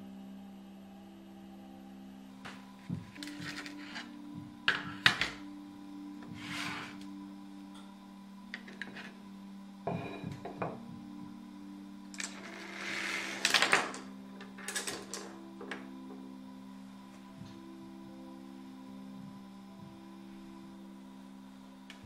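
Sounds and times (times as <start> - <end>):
steady low hum: 0.0 - 22.0
scratchy tool strokes: 6.3 - 7.1.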